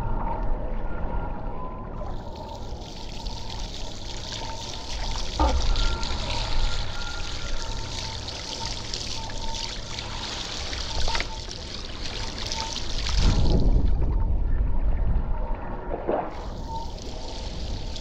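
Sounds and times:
wind rumbling on microphone: 0:10.6 - 0:18.0
low rumble: 0:10.8 - 0:18.0.

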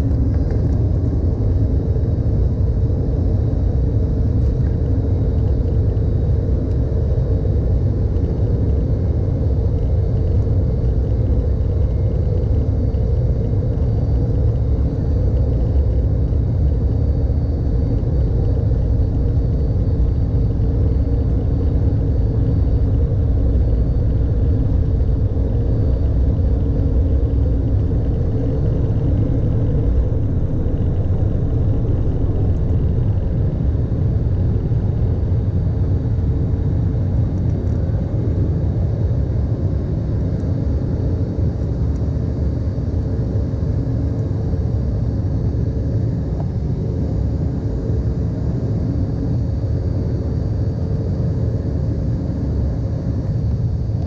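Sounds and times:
jet engines roaring: 0:17.6 - 0:38.5.

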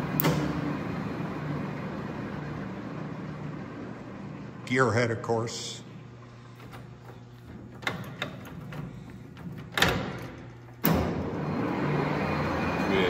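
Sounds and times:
lever metal clicks and clunks: 0:06.7 - 0:11.2
lathe spindle running: 0:10.6 - 0:13.0.

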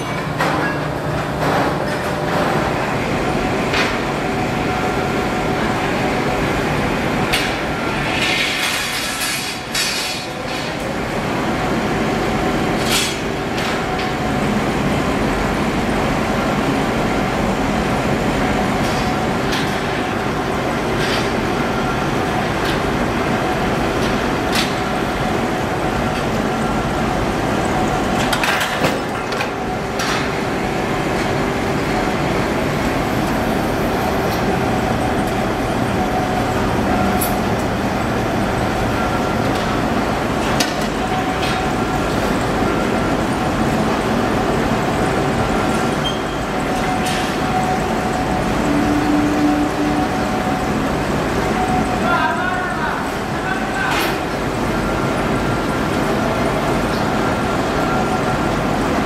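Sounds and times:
furnace roaring: 0:00.0 - 0:59.0
workshop machinery running: 0:00.0 - 0:59.0.

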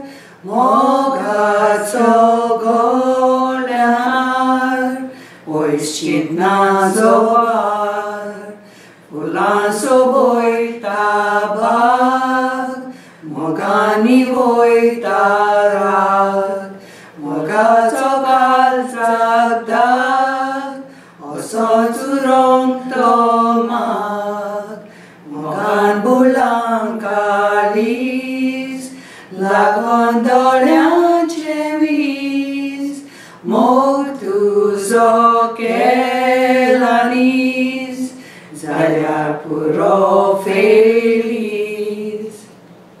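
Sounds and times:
singers breathing: 0:00.0 - 0:00.4, 0:05.1 - 0:05.5, 0:08.6 - 0:09.1, 0:12.9 - 0:13.3, 0:16.8 - 0:17.2, 0:20.9 - 0:21.2, 0:24.8 - 0:25.3, 0:28.9 - 0:29.4, 0:33.0 - 0:33.5, 0:38.1 - 0:38.6
women singing unaccompanied: 0:00.0 - 0:42.6.

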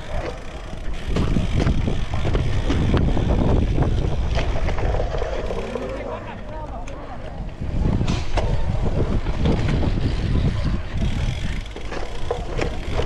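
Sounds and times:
wind buffeting microphone: 0:00.0 - 0:05.7, 0:07.2 - 0:13.0
bike rattling on rough dirt: 0:00.0 - 0:06.8, 0:07.4 - 0:13.0.

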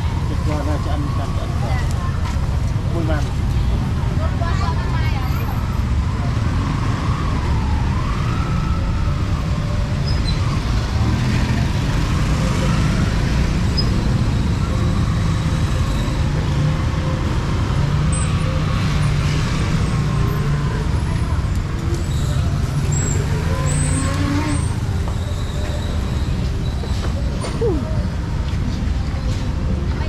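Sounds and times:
street traffic rumbling: 0:00.0 - 0:30.0.

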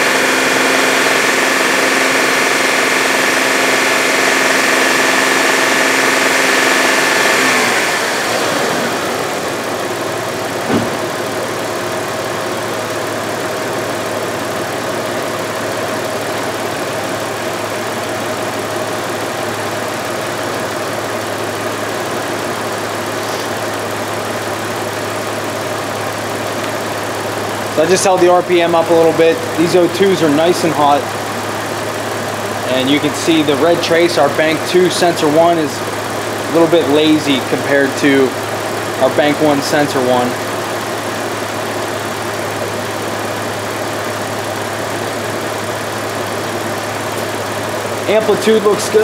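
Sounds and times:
car engine revving and idling: 0:00.0 - 0:49.0
short knock: 0:10.7 - 0:11.1.

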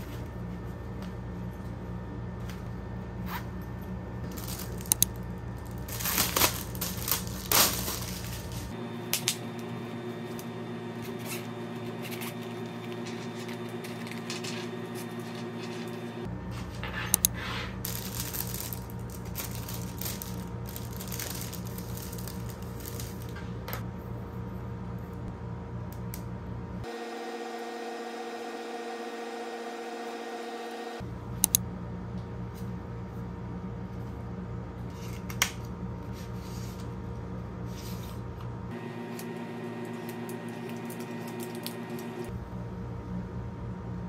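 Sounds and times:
plastic pens clicking and rustling: 0:04.3 - 0:05.2, 0:17.9 - 0:23.3.

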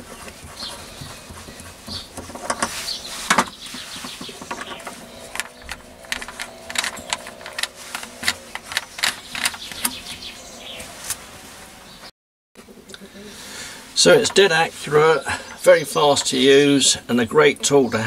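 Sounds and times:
drill chuck metal clicks: 0:05.3 - 0:10.1.

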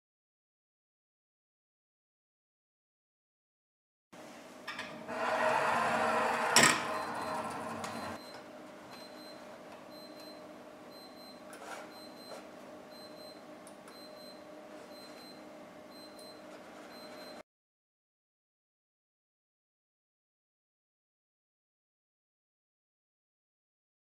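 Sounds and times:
cart rolling on metal track: 0:05.1 - 0:08.2.

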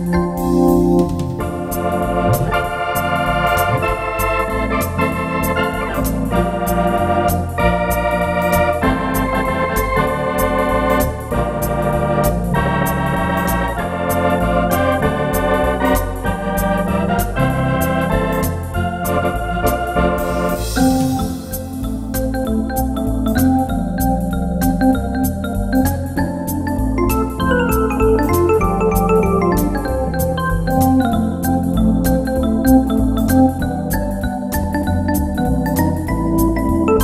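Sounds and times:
electronic organ chords: 0:00.0 - 0:37.0
organ pedal bass line: 0:00.0 - 0:37.0.

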